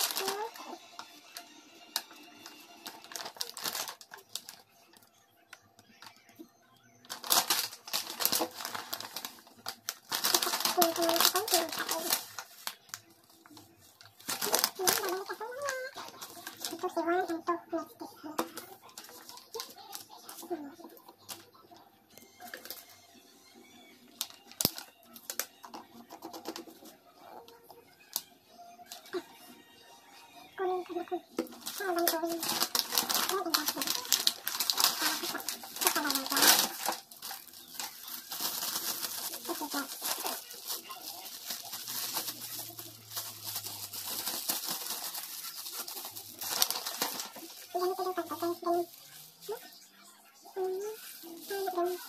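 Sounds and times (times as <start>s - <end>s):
paper leaflet rustling: 2.0s - 4.6s, 7.1s - 17.4s, 31.4s - 49.8s, 50.7s - 52.0s
plastic bottles clicking and knocking: 7.1s - 12.2s, 24.2s - 26.9s, 31.4s - 48.3s.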